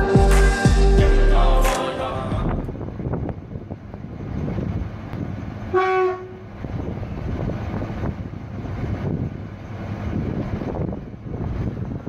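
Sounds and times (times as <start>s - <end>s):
continuous low rumble: 0.0s - 12.0s
locomotive horn blast: 5.7s - 6.5s.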